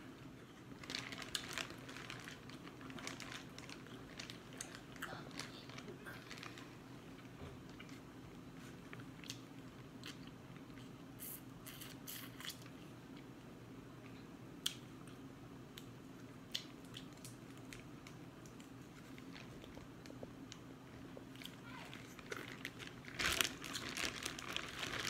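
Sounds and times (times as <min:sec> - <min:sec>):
low steady hum: 0:00.0 - 0:25.0
seafood crackling in plastic bag: 0:00.7 - 0:06.8, 0:21.6 - 0:25.0.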